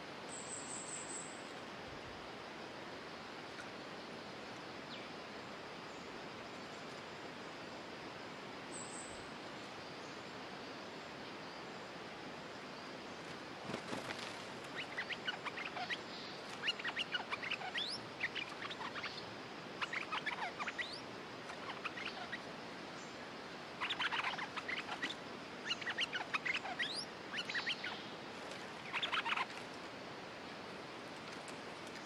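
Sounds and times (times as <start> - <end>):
birds chattering calls: 14.6 - 29.5.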